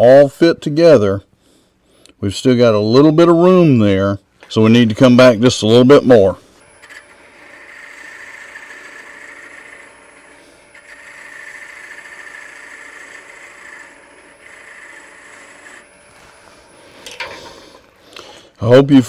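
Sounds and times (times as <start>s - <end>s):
lathe humming: 6.4s - 18.4s
lathe tool cutting wood hiss: 6.6s - 17.9s.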